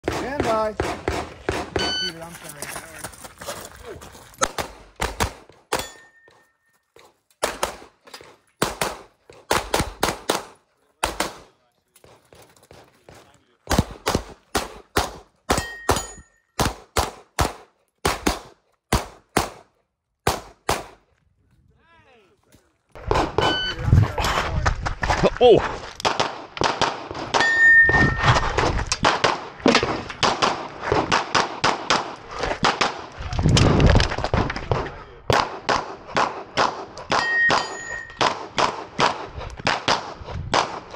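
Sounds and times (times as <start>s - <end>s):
pistol shots: 0.0s - 2.1s, 4.4s - 6.0s, 7.4s - 8.0s, 8.6s - 11.6s, 13.6s - 21.0s, 23.0s - 23.7s, 26.0s - 33.2s, 34.6s - 40.9s
short ringing tone: 5.8s - 6.8s, 23.4s - 23.8s, 27.4s - 28.2s, 37.2s - 38.2s.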